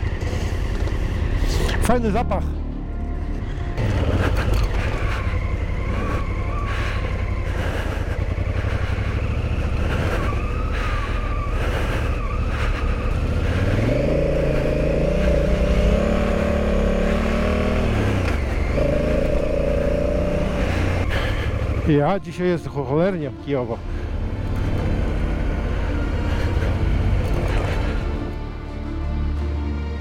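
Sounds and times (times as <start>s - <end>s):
motorcycle engine running: 0.0s - 22.5s, 23.8s - 28.6s.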